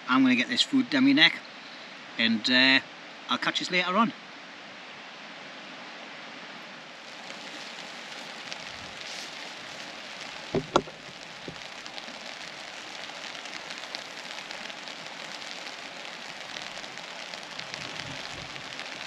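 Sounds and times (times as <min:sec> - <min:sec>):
water hissing and pattering: 0:07.0 - 0:19.0
sharp knocks: 0:10.6 - 0:11.0.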